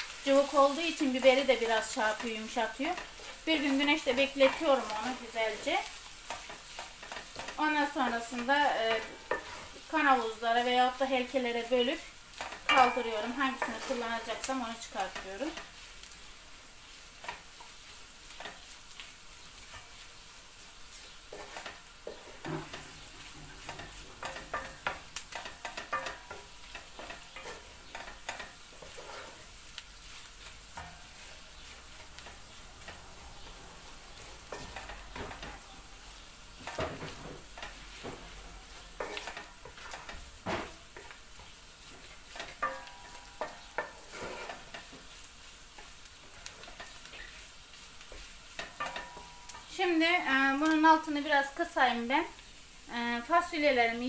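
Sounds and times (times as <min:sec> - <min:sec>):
paste sizzling in hot oil: 0:00.0 - 0:54.0
utensil scraping a pot: 0:01.8 - 0:11.0, 0:21.0 - 0:35.8, 0:36.5 - 0:40.4, 0:41.0 - 0:45.2.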